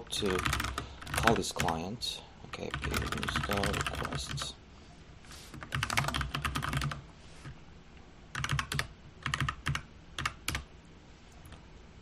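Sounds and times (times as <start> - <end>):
typing on computer keyboard: 0.2 - 1.8, 2.7 - 4.5, 5.6 - 7.0, 8.3 - 10.7.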